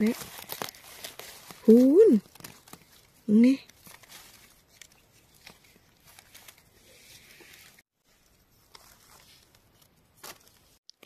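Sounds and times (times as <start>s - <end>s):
dry leaf litter rustling: 0.0s - 7.7s.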